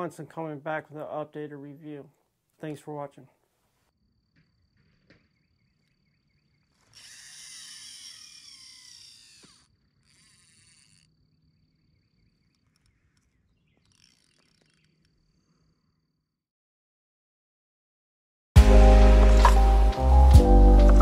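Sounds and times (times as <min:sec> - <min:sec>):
fishing reel spool whirring: 0:06.3 - 0:16.4.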